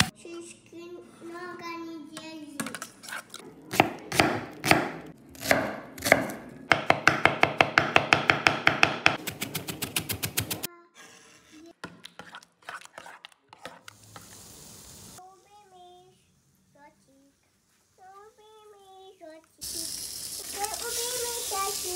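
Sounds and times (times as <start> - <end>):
child's voice: 0.0 - 2.9, 10.6 - 11.9, 15.2 - 21.9
knife chopping on wooden board: 3.8 - 10.7.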